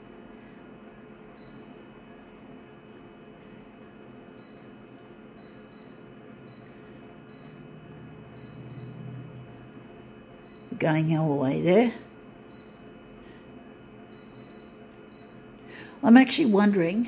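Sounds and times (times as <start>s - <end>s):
low hum: 5.4s - 16.0s.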